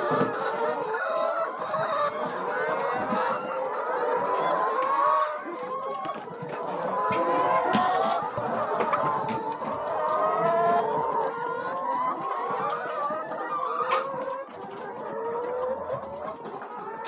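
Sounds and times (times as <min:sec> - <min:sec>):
hens clucking and calling: 0:00.0 - 0:17.0.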